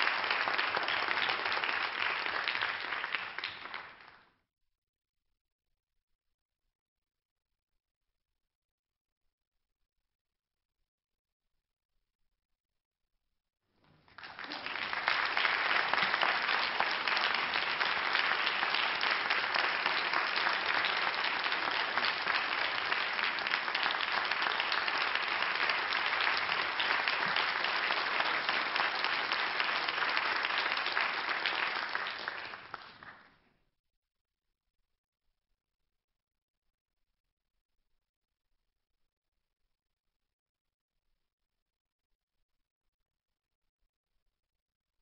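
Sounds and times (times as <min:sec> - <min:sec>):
audience applauding: 0:00.0 - 0:04.3, 0:13.8 - 0:33.4.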